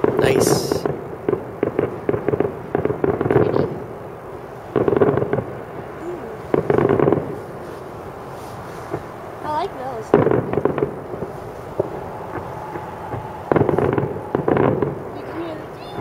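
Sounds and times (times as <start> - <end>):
fireworks booming: 0.0 - 16.0
fireworks crackling: 0.0 - 16.0.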